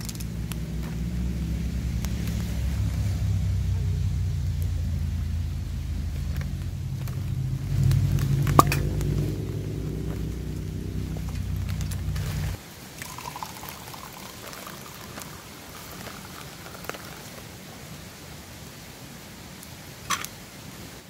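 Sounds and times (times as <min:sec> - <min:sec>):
faint crackling clicks: 0:00.0 - 0:00.9
low steady hum: 0:00.0 - 0:16.5
liquid pouring into cup: 0:13.0 - 0:17.4.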